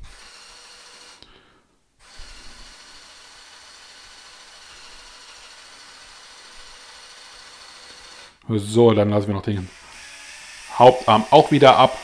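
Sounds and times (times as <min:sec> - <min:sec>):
toy crane motors whining: 0:00.0 - 0:01.3, 0:02.0 - 0:08.4, 0:09.6 - 0:12.0.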